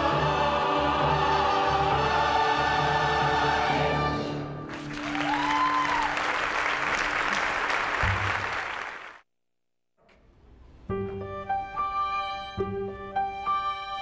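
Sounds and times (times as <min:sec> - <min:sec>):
choir and orchestra chord: 0:00.0 - 0:04.6
audience applauding: 0:04.7 - 0:09.2.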